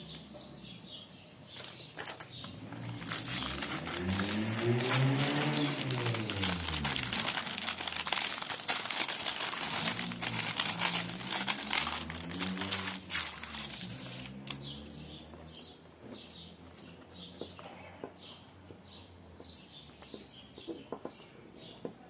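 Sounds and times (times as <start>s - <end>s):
plastic bag crinkling: 1.6s - 14.6s.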